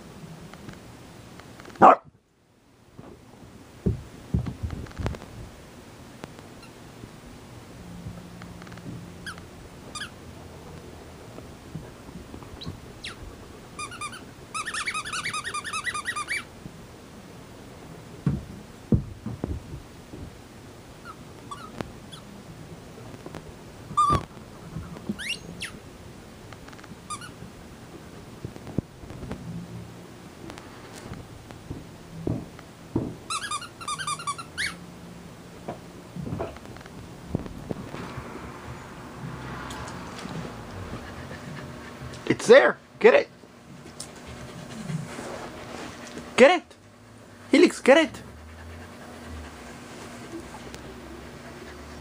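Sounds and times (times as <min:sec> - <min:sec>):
soft thumps: 0:03.8 - 0:05.5, 0:31.1 - 0:33.2
puppy whining: 0:12.6 - 0:13.2, 0:13.8 - 0:16.5, 0:21.0 - 0:22.3, 0:24.9 - 0:25.8, 0:33.3 - 0:34.8, 0:40.2 - 0:42.3.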